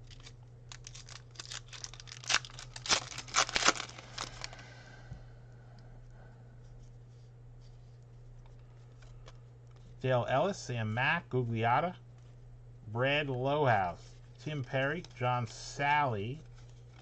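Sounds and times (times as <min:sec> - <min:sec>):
foil wrapper tearing and crinkling: 0:00.0 - 0:04.6
steady low hum: 0:00.0 - 0:17.0.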